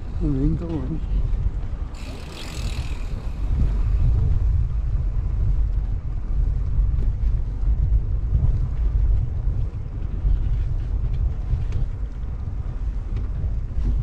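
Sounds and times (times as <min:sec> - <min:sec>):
wind rumbling on microphone: 0:00.0 - 0:14.0
bicycle passing hiss: 0:01.9 - 0:04.2.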